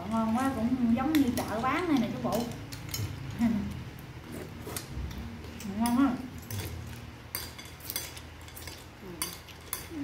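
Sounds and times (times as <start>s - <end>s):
spoons clinking on ceramic bowls: 5.6s - 10.0s.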